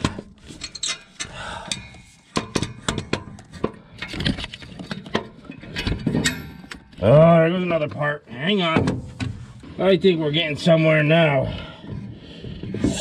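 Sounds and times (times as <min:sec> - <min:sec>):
metal clunks and knocks: 0:00.0 - 0:07.0, 0:08.6 - 0:09.7.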